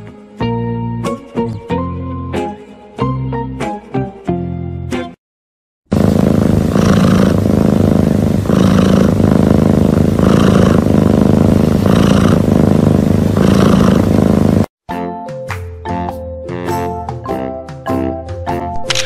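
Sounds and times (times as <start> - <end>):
cat breathing rumble: 5.9 - 14.7.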